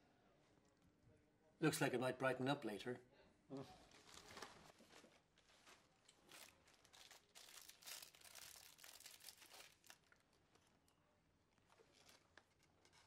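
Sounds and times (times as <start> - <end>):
paper crinkling and rustling: 3.8 - 10.9, 11.6 - 13.0.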